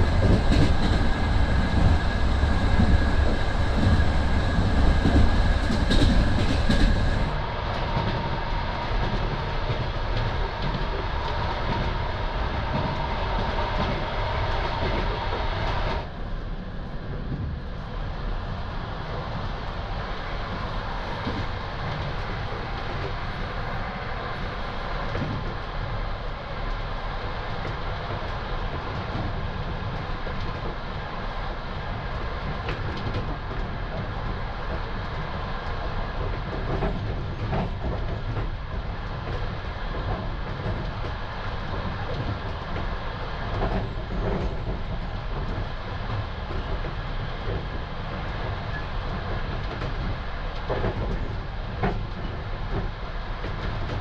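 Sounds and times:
train wheels rumbling on track: 0.0 - 54.0.

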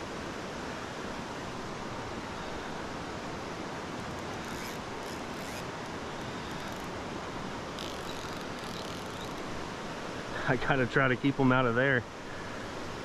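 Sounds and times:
stream rushing over riffles: 0.0 - 13.0
faint ticks: 4.1 - 7.0, 7.7 - 9.5.

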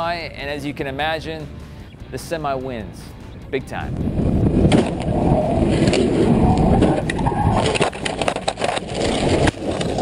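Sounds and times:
crunching and rattling cracks: 4.6 - 10.0.

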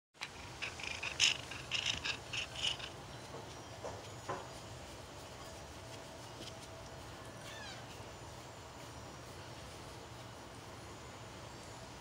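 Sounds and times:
kittens squeaking: 0.2 - 4.4, 7.3 - 8.0
low background hum: 0.2 - 12.0.

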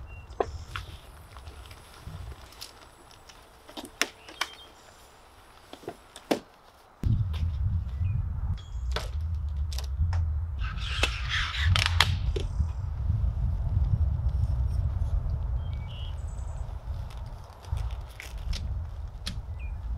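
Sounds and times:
straps and buckles clicking: 0.4 - 4.8, 17.0 - 19.4
steady low rumble: 7.0 - 19.9.

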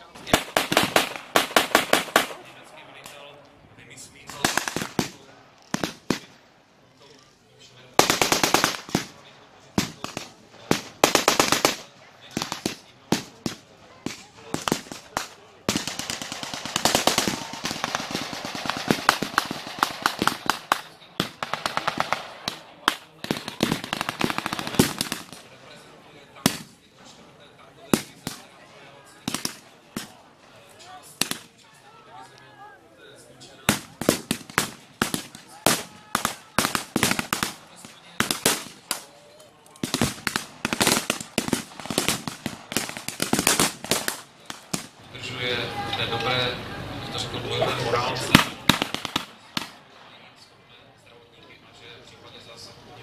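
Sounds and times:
blank gunshots: 0.0 - 3.3, 4.2 - 6.4, 7.9 - 31.7, 33.5 - 45.1, 47.7 - 50.2
gunfire: 0.1 - 3.2, 4.2 - 6.4, 8.0 - 25.8, 26.4 - 27.2, 27.9 - 31.7, 33.6 - 45.0, 48.2 - 50.1.

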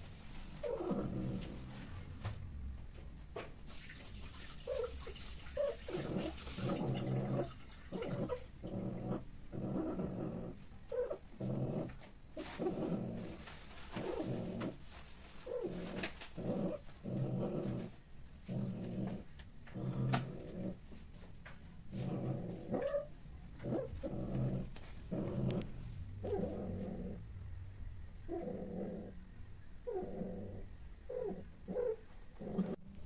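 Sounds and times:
cat growling low: 0.6 - 1.8, 5.6 - 14.8, 15.4 - 20.8, 21.9 - 27.4, 28.2 - 33.0.

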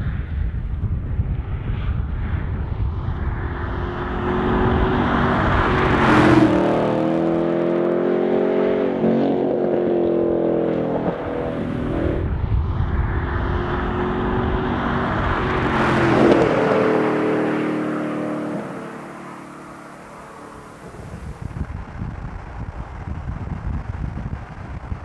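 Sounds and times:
car driving past under throttle: 3.0 - 21.8.

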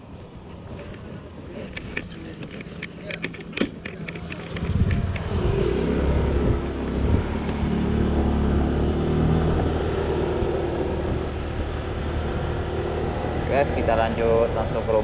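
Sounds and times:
scooter engine revving: 4.2 - 15.0.

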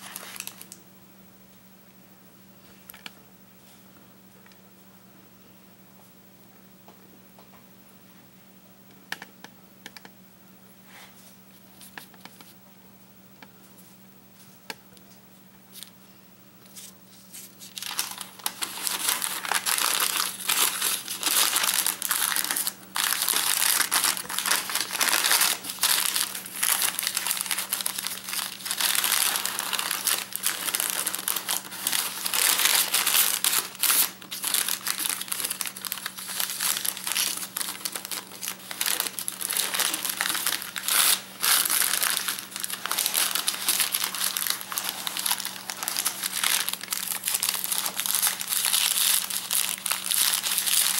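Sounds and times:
paper crinkling: 0.0 - 0.8, 16.7 - 50.9.

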